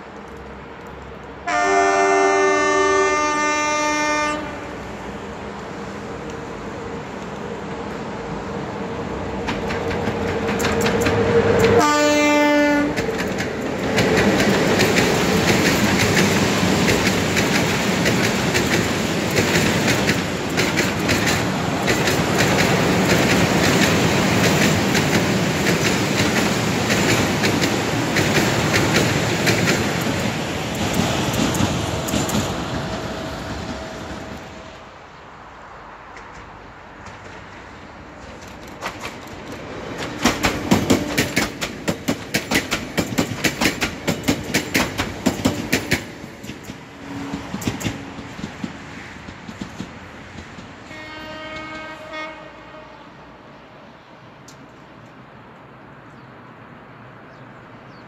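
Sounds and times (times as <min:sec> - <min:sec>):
electric locomotive approaching: 0:00.0 - 0:58.0
locomotive horn: 0:01.4 - 0:04.8, 0:11.6 - 0:13.0, 0:50.8 - 0:53.3
wheels clacking over rail joints: 0:09.2 - 0:34.5, 0:36.1 - 0:52.0.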